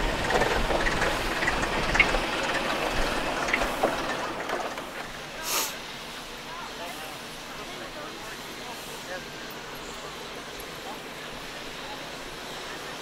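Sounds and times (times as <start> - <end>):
diesel truck engine rumbling: 0.0 - 13.0
air brake hiss: 5.4 - 6.0.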